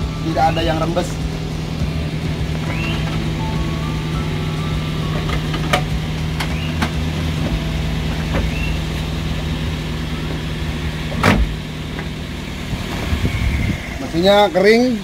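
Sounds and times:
car engine idling: 0:00.0 - 0:15.0
loud clunk: 0:11.1 - 0:12.1.

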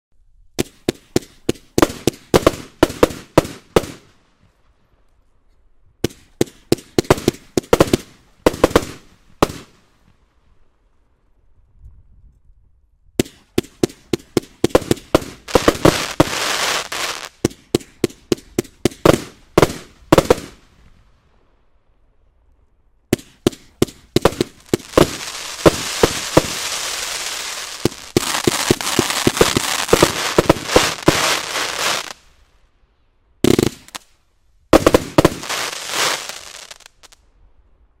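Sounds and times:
firework cake firing sharp shots: 0:00.6 - 0:04.1, 0:06.1 - 0:09.7, 0:13.2 - 0:20.6, 0:23.2 - 0:32.2, 0:33.4 - 0:34.0, 0:34.8 - 0:36.6.

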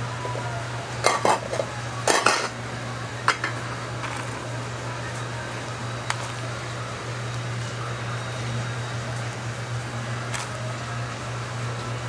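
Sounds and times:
steady low hum: 0:00.0 - 0:12.0
metal pans and utensils clattering: 0:01.0 - 0:02.6, 0:03.2 - 0:04.4.

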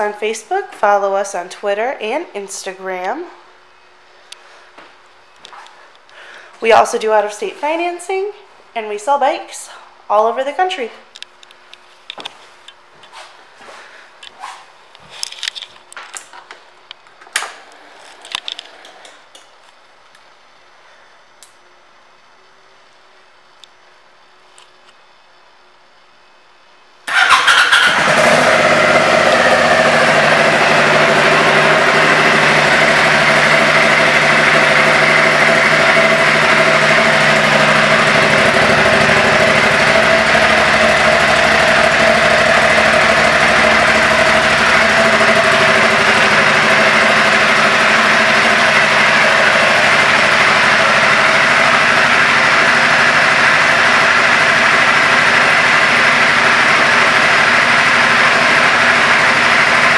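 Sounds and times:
motorcycle engine starting and idling: 0:27.0 - 0:59.9.

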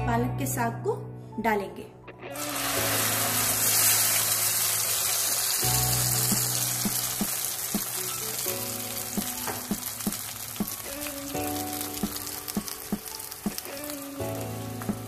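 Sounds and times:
puree sizzling in hot fat: 0:02.4 - 0:15.0.

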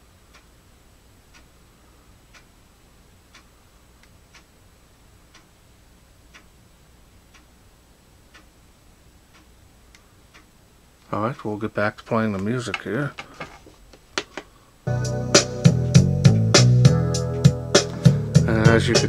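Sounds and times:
low room hum: 0:00.0 - 0:19.0
clock ticking: 0:00.3 - 0:00.6, 0:01.3 - 0:01.5, 0:02.2 - 0:02.6, 0:03.3 - 0:04.6, 0:05.2 - 0:05.6, 0:06.2 - 0:06.6, 0:07.2 - 0:07.5, 0:08.2 - 0:08.6, 0:09.2 - 0:10.5.

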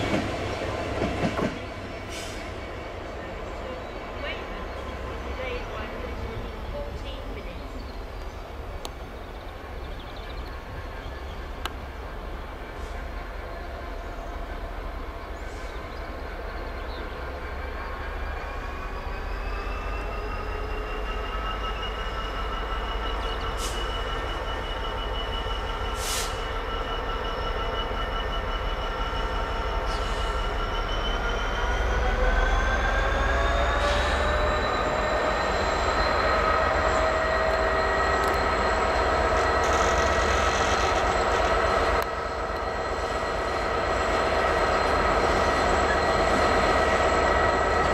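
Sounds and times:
metallic clanks from train: 0:00.0 - 0:02.9, 0:32.5 - 0:47.9
diesel locomotive engine rumble: 0:00.0 - 0:47.9.

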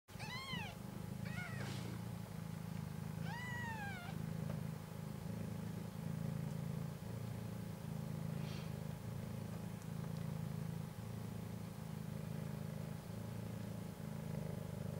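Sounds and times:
newborn kittens mewing: 0:00.1 - 0:01.9, 0:03.2 - 0:04.2
mother cat purring: 0:00.1 - 0:14.9.

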